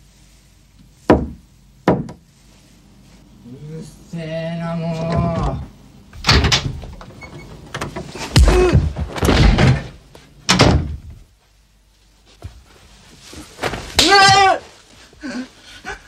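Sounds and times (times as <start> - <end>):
wooden door banging: 1.1 - 2.2, 6.2 - 7.1, 7.8 - 11.2.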